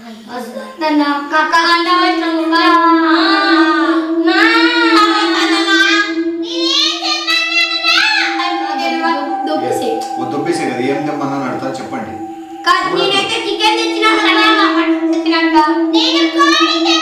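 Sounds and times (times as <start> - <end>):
high wordless voice wailing: 0.0 - 17.0
steady drone note: 0.0 - 17.0.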